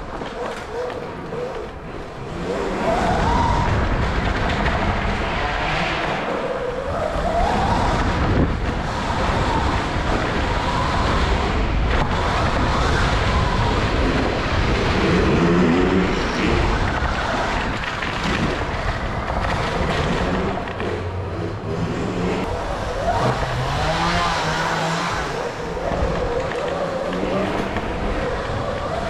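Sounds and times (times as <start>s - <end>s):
dirt bike engines: 0.0s - 29.0s.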